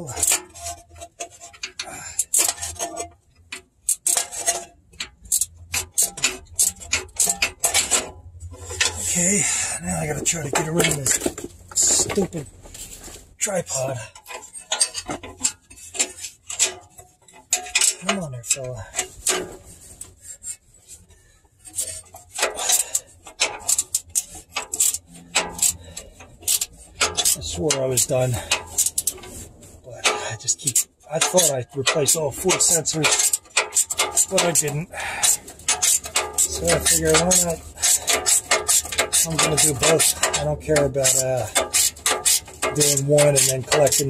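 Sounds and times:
hand ratchet clicking: 0.1s - 3.0s, 3.8s - 9.2s, 14.2s - 20.6s, 21.6s - 44.0s.

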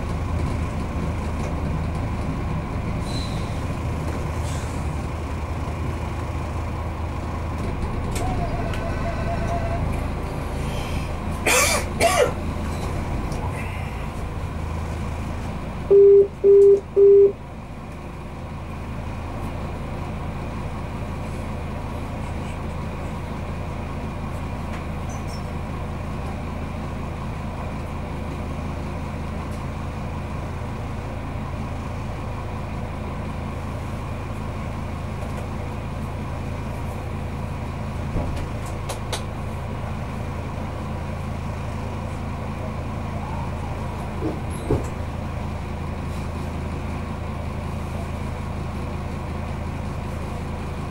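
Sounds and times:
railcar engine humming: 0.0s - 50.9s
warning tone beeps: 15.9s - 17.4s.

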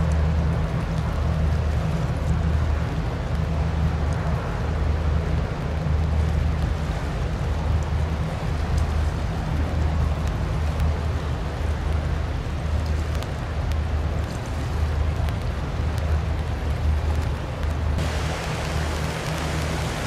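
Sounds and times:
light rain: 0.0s - 20.0s
ship engine rumble: 0.0s - 20.0s
water hissing: 18.0s - 20.0s.

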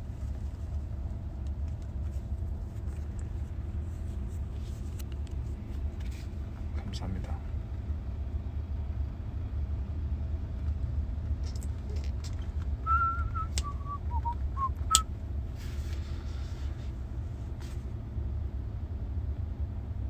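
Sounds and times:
car cabin rumble: 0.0s - 17.6s
person whistling a tune: 12.8s - 15.0s.

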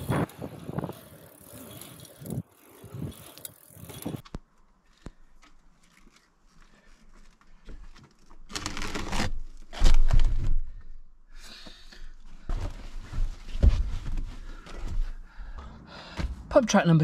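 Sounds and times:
bicycle knocking down: 0.0s - 4.4s, 8.4s - 10.8s
tarpaulin rustling and crinkling: 5.5s - 10.4s.

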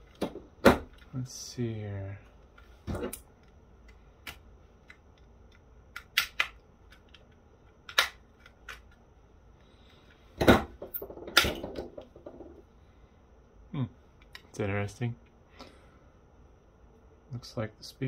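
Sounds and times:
plastic clips snapping: 3.1s - 9.0s.

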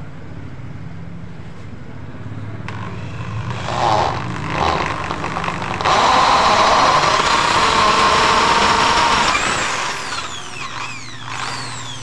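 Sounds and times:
electric drill boring into wood: 2.7s - 12.0s.

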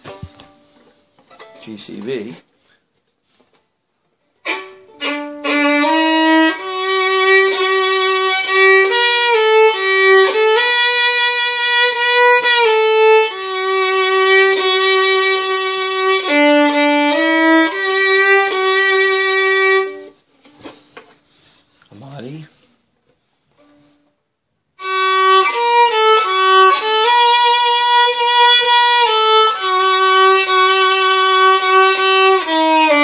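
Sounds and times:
solo violin melody: 4.4s - 20.3s, 24.8s - 33.0s.

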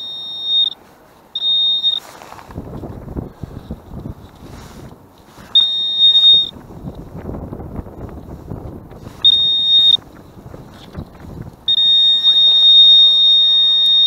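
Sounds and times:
metal detector beep: 0.0s - 2.2s, 5.4s - 6.6s, 9.2s - 10.0s, 11.7s - 14.0s.

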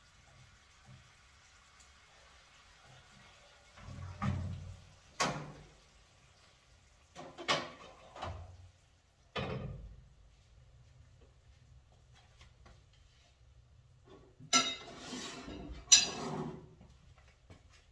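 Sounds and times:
kitchenware knocking and clattering: 7.2s - 8.5s, 9.3s - 10.0s, 14.1s - 16.7s.

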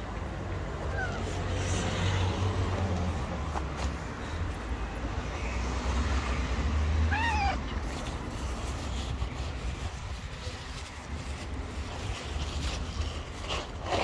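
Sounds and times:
cat meowing: 7.1s - 7.7s.

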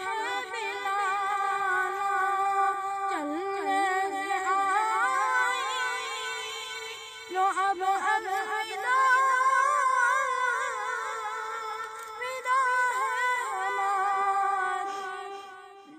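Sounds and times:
boy singing unaccompanied: 0.0s - 15.9s.

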